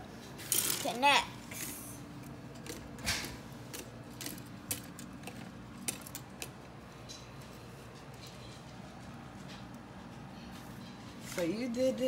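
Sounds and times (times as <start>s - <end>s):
plastic construction pieces clicking: 2.5s - 6.6s.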